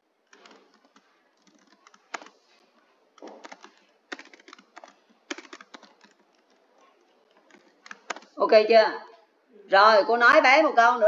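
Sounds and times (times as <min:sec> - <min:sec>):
keyboard typing clicks: 0:00.2 - 0:02.4, 0:03.2 - 0:08.4.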